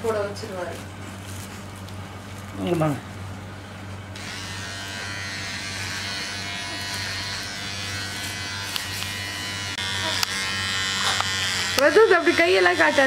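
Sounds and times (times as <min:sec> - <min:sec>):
electric hair trimmer buzzing: 0:04.2 - 0:13.0.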